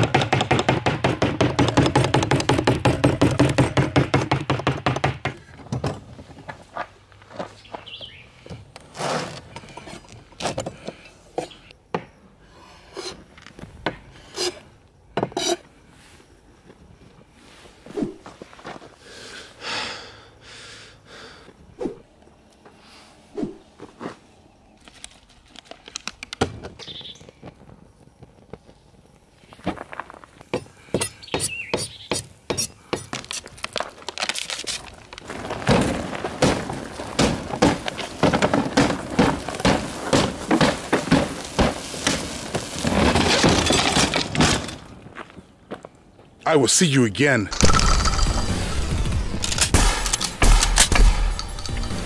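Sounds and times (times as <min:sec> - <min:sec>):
man breathing out hard: 0:19.0 - 0:21.6
fire crackling: 0:32.9 - 0:45.1
fire burning with rushing hiss: 0:34.8 - 0:43.3.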